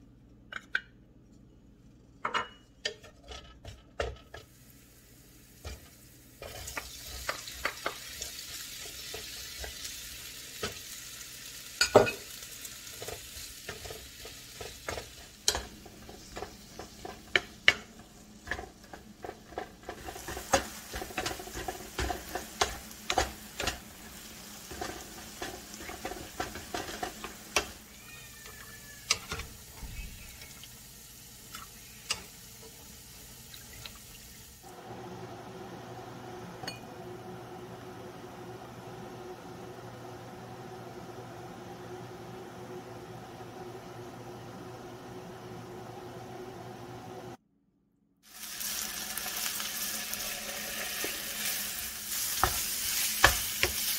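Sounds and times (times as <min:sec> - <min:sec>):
spatula knocking and scraping pan: 0:02.3 - 0:04.5, 0:05.6 - 0:09.9, 0:11.8 - 0:30.1, 0:50.9 - 0:53.9
food sizzling in pan: 0:04.3 - 0:47.1, 0:48.2 - 0:53.9.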